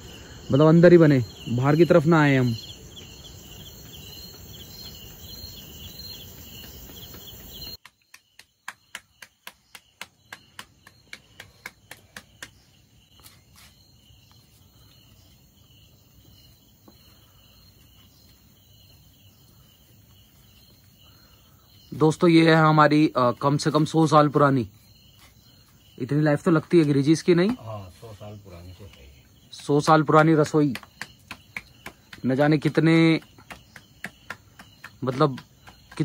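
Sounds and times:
crickets chirping: 0.0s - 36.0s
hands slapping dough: 7.8s - 12.7s, 30.4s - 36.0s.

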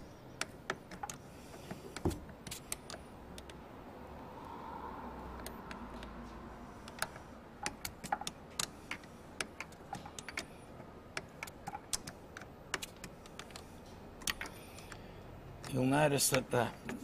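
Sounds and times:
allen key clicking on bolts: 0.4s - 3.6s, 6.8s - 17.0s.

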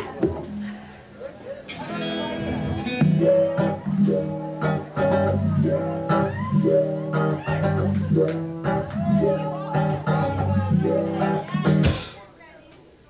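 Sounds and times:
blues-rock band playing live: 1.7s - 12.0s.

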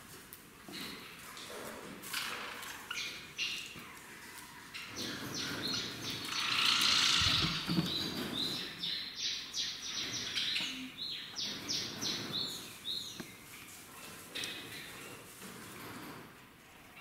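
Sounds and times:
small birds chirping: 2.8s - 13.6s
loud noisy bird call: 5.3s - 8.1s.

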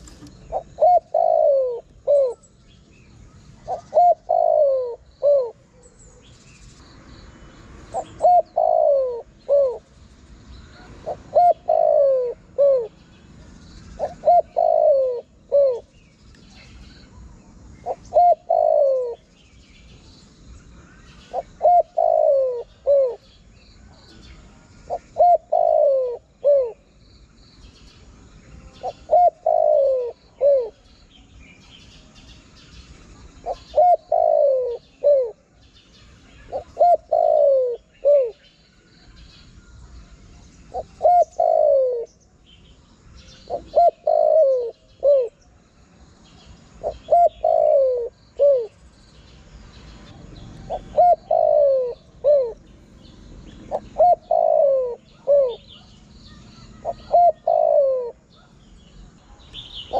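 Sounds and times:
dove cooing: 0.0s - 2.6s, 3.6s - 6.3s, 7.9s - 10.0s, 10.7s - 13.1s, 13.9s - 16.0s, 17.8s - 19.3s, 21.3s - 23.3s, 24.9s - 26.9s, 28.8s - 30.8s, 33.4s - 35.6s, 36.4s - 38.4s, 40.7s - 42.2s, 43.5s - 45.5s, 46.7s - 48.8s, 50.6s - 52.6s, 53.6s - 55.9s, 56.7s - 58.5s.

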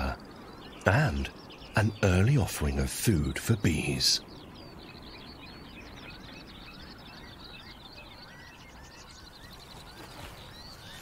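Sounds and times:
low background noise: 0.0s - 11.0s
small birds chirping: 0.0s - 11.0s.

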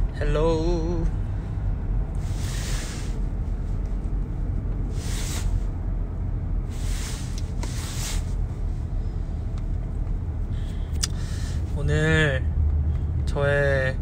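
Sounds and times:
low rumble inside car cabin: 0.0s - 14.0s
short hissy rustles: 2.2s - 3.3s, 4.9s - 5.7s, 6.7s - 8.4s.

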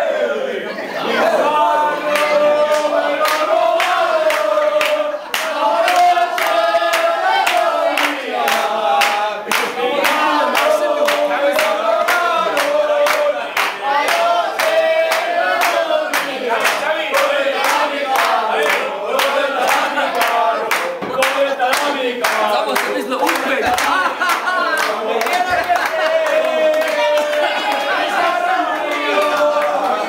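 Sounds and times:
group singing in chorus: 0.0s - 30.0s
hands clapping on a beat: 2.1s - 30.0s.

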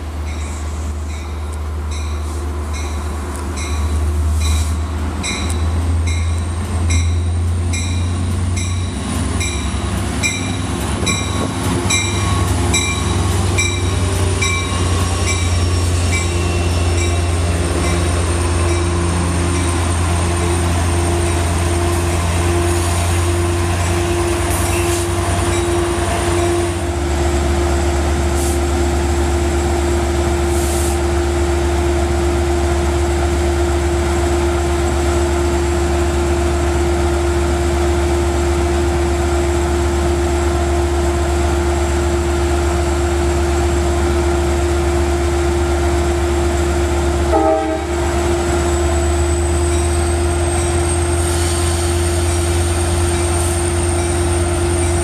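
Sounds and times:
diesel locomotive rumbling: 0.0s - 55.0s
locomotive bell ringing: 0.2s - 26.8s, 48.6s - 51.2s, 52.0s - 55.0s
train wheels squealing: 3.6s - 21.7s, 22.4s - 26.8s, 48.4s - 55.0s.

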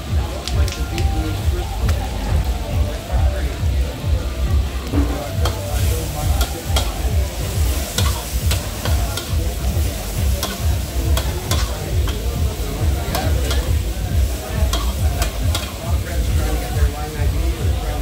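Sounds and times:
food sizzling: 0.0s - 18.0s
steady low rumble: 0.0s - 18.0s
metal spatula scraping a wok: 5.0s - 16.7s.

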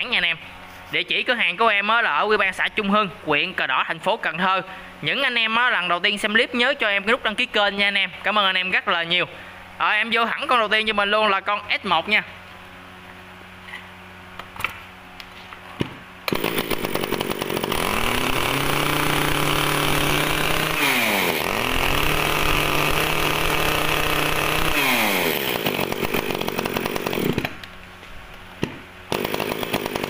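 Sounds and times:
chainsaw revving and idling: 16.3s - 27.7s, 29.1s - 30.0s.

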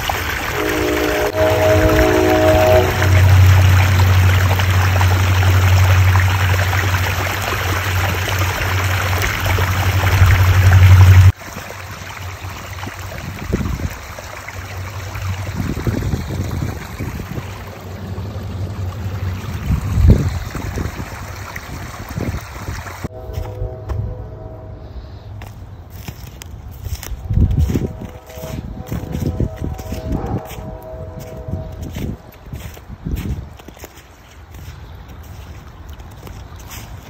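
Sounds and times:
creek gently trickling: 0.0s - 23.4s, 25.2s - 37.0s
creek rushing over rocks: 0.0s - 23.8s
low rumbles: 0.4s - 32.3s.

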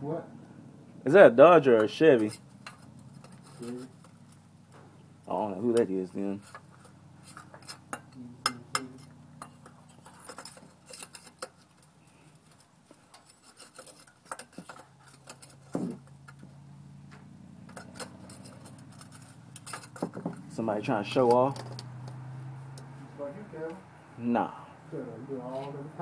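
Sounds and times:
vehicle engine humming: 0.0s - 26.0s
metal clicks and clinks: 21.2s - 22.9s.

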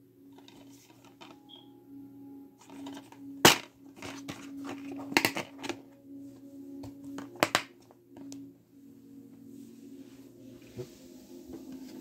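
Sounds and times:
plastic case clicks and snaps: 2.7s - 5.8s.

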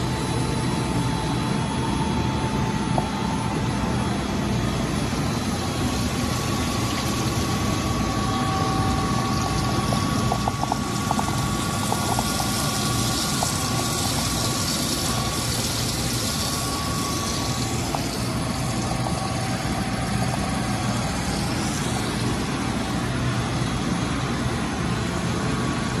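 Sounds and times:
grinder humming: 4.8s - 23.1s
coolant spray hiss: 5.1s - 25.4s.

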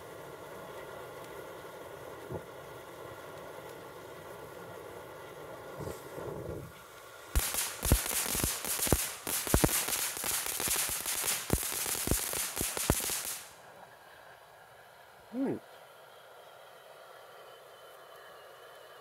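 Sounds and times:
firework crackling and popping: 0.0s - 13.7s
firework fountain hiss: 0.0s - 14.7s.

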